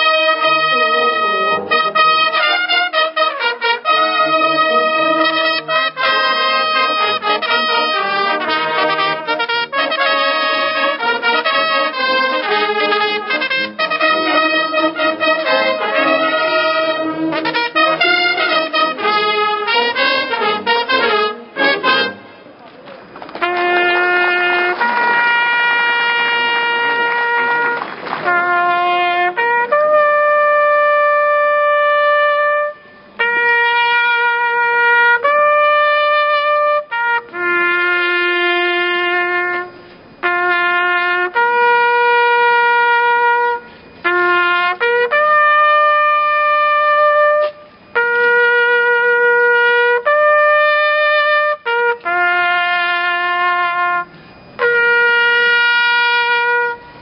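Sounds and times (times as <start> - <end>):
brass fanfare of trumpets: 0.0 - 22.6, 23.3 - 57.0.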